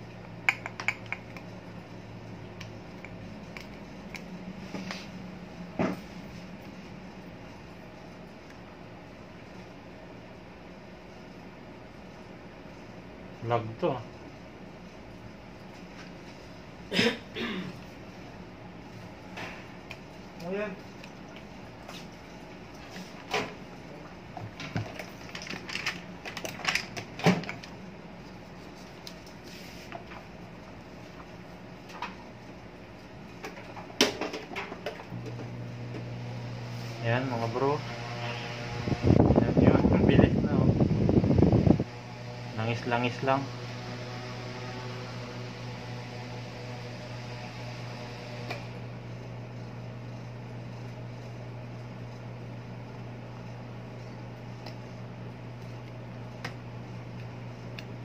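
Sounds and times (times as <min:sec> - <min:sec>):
electric fan motor humming: 0:00.0 - 0:58.0
fan motor clicking and knocking: 0:00.2 - 0:01.6, 0:38.8 - 0:41.9.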